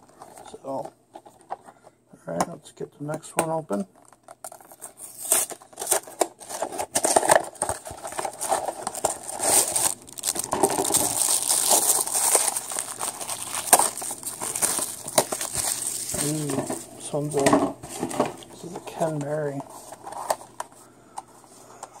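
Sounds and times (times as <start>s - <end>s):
packaging crinkling and tearing: 3.7s - 20.8s.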